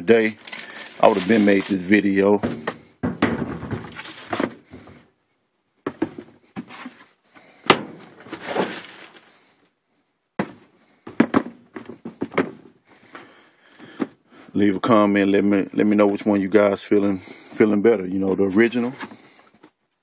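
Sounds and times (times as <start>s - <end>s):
tissue paper rustling: 0.2s - 2.7s, 3.7s - 4.5s, 8.1s - 9.4s.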